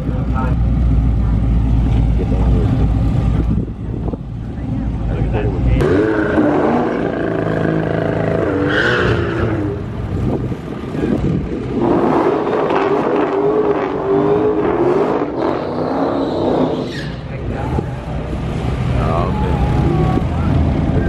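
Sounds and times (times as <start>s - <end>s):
drag car engine revving: 4.9s - 10.0s, 11.0s - 19.0s.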